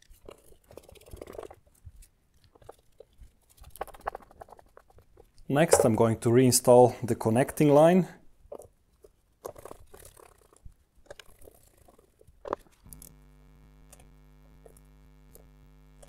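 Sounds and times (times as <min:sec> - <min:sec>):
faint steady hum: 0:12.8 - 0:16.0.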